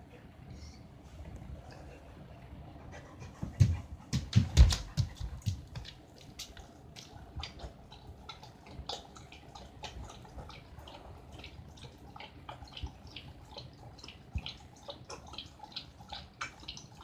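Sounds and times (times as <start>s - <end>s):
dog paws on wooden floor: 3.4s - 7.6s.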